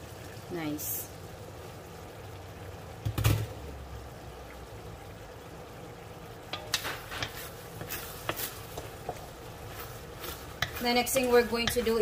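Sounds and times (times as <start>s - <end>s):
stew bubbling: 0.0s - 12.0s
spatula scraping a wok: 6.5s - 12.0s.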